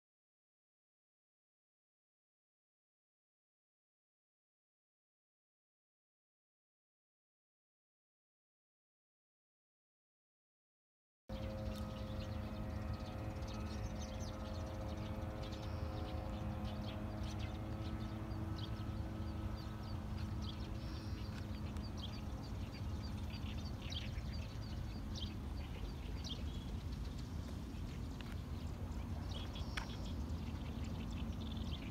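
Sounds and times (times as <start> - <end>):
faint steady hum: 11.3 - 31.9
small birds chirping: 11.3 - 31.9
steady low rumble: 11.3 - 31.9
high ticking bird calls: 11.4 - 31.9.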